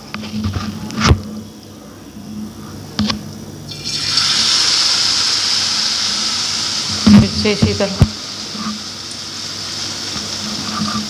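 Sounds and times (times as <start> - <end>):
potato strips sizzling in hot oil: 3.7 - 11.0.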